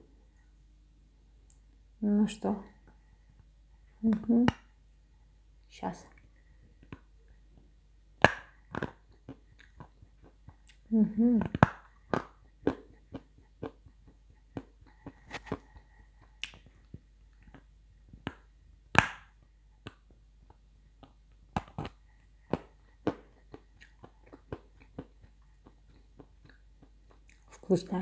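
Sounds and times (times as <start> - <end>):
clay being bitten and chewed: 8.2 - 10.9, 11.5 - 27.6.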